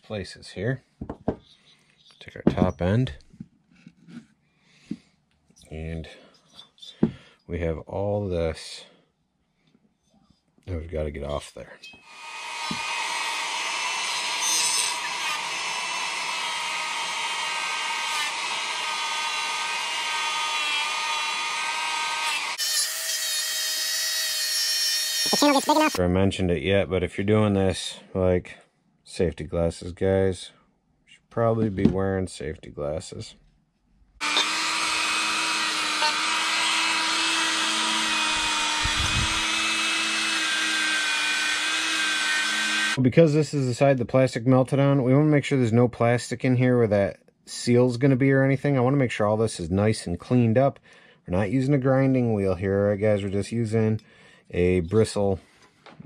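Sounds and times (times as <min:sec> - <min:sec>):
rotary tool whining: 0:12.0 - 0:26.0, 0:34.2 - 0:43.0
wire brush scratchy rasp: 0:14.3 - 0:15.6.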